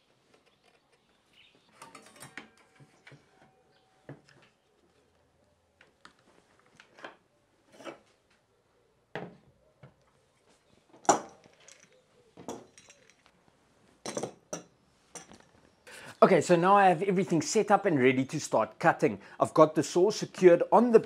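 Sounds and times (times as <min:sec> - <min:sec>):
tool parts clattering on workbench: 0:01.8 - 0:03.3, 0:11.0 - 0:13.3, 0:14.0 - 0:15.5.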